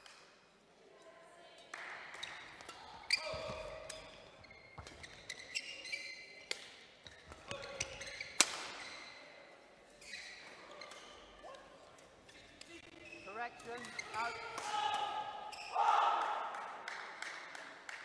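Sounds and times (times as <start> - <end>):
rackets hitting shuttlecock: 1.8 - 5.7, 6.4 - 9.0, 13.6 - 16.7
shoes squeaking on court: 2.2 - 14.6, 15.5 - 15.8.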